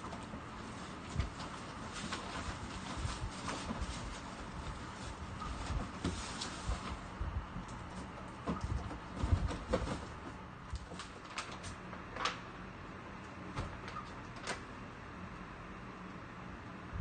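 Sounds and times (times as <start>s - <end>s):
items knocking and rustling in box: 0.0s - 12.4s
faint steady hum: 0.0s - 17.0s.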